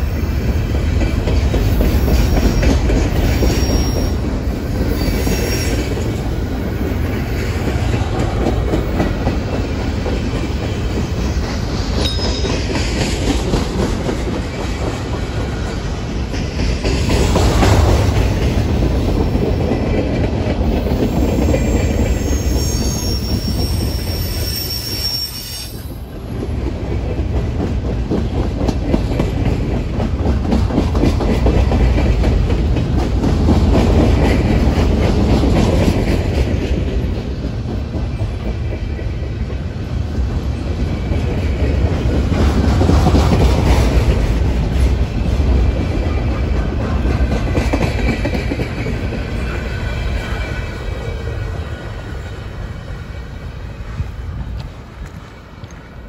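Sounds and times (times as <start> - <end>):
train wheels rumbling and clattering: 0.0 - 56.0
high wheel squeal: 3.4 - 4.2, 4.8 - 6.0, 21.2 - 26.0.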